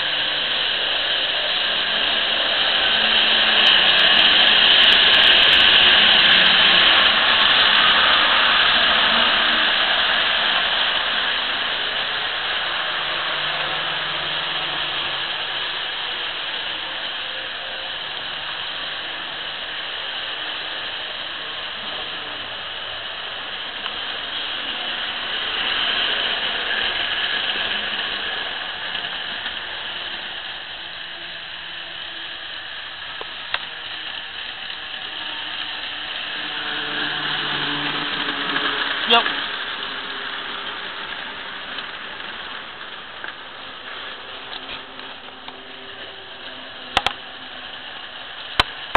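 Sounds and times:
faint motor hum: 0.0s - 48.9s
model train wheels rattling: 0.0s - 48.9s.

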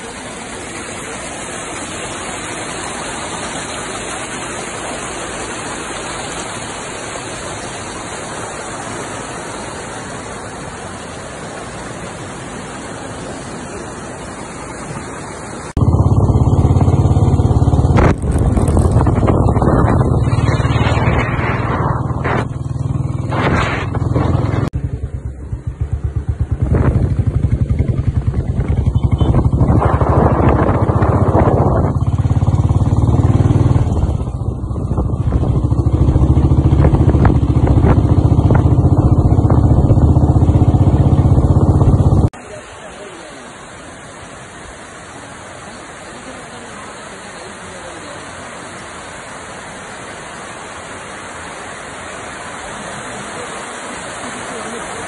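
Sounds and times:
stream rushing over rocks: 0.0s - 15.8s, 16.6s - 24.8s, 28.2s - 55.0s
moving vehicle rumble: 0.0s - 42.4s
wind buffeting on microphone: 17.4s - 24.8s, 26.3s - 42.2s.

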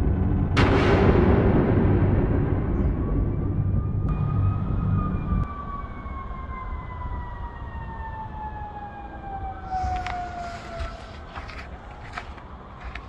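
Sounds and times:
low rumble: 0.0s - 7.0s
siren sliding down in pitch: 3.4s - 13.0s.

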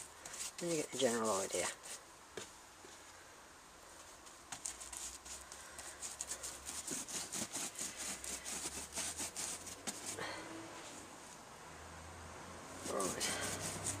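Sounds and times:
paintbrush scrubbing and dabbing: 0.0s - 2.0s, 4.0s - 11.0s, 12.7s - 14.0s.

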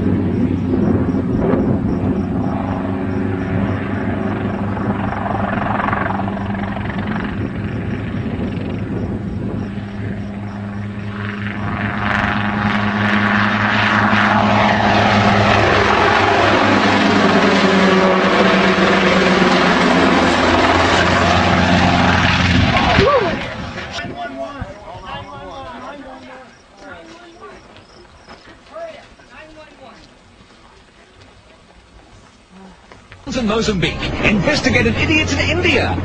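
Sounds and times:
helicopter engine and rotor: 0.0s - 22.9s, 33.3s - 36.0s.

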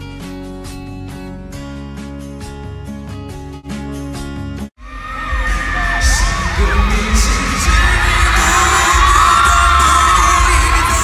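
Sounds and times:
crowd screaming and cheering: 4.8s - 11.0s
heavy bass beat: 4.8s - 11.0s
person singing: 5.2s - 11.0s.

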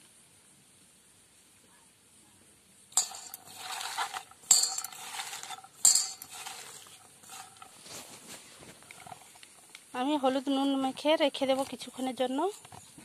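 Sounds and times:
sharp clinks against steel: 3.0s - 7.7s
wet pieces scraping in metal bowl: 3.0s - 9.7s.

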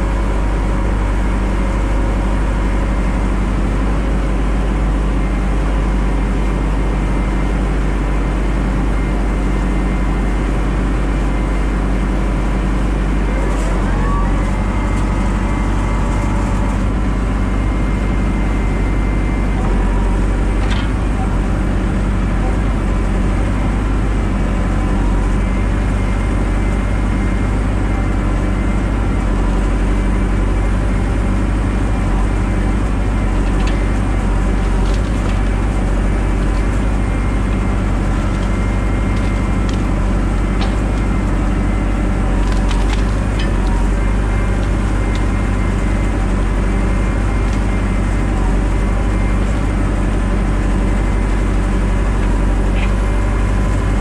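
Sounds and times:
engine running steadily: 0.0s - 54.0s
branches snapping: 42.4s - 43.8s.

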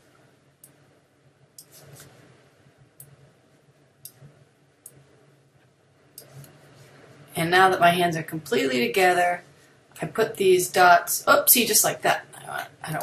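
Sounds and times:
low steady room hum: 0.0s - 13.0s
computer mouse clicks: 0.6s - 0.8s, 1.6s - 2.2s.

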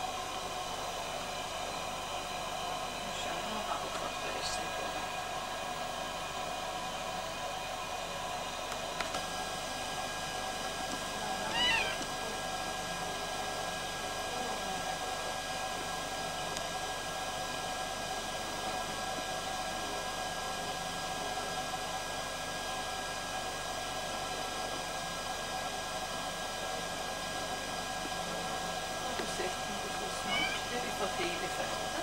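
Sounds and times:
cat mewing: 11.4s - 12.1s, 30.2s - 30.7s.

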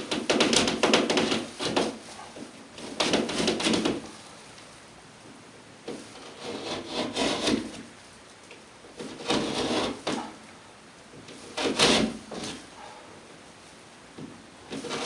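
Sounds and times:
utility knife cutting drywall: 0.0s - 2.1s, 2.8s - 4.1s, 5.9s - 7.9s, 9.0s - 10.4s, 11.4s - 12.6s, 14.7s - 15.0s.

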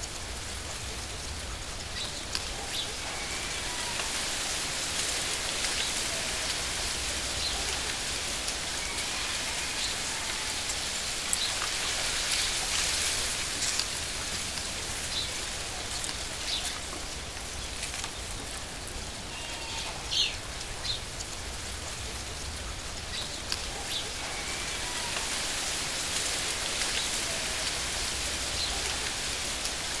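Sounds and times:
running water hiss: 0.0s - 30.0s.

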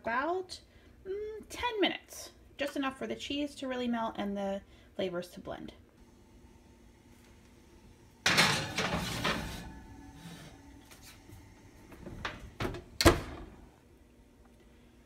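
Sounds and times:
ceramic dish on metal rack: 8.2s - 10.0s
oven door banging shut: 8.2s - 10.0s, 12.0s - 13.7s.

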